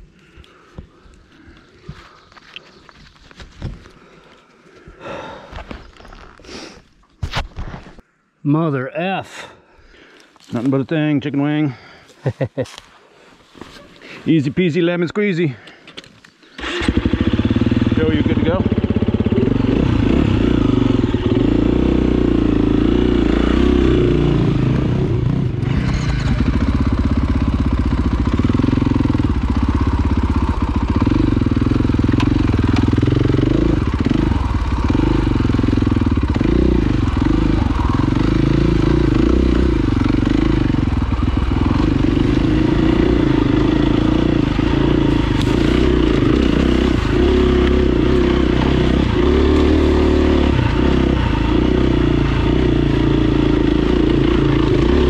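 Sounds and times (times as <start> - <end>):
dirt bike engine revving: 16.6 - 55.0.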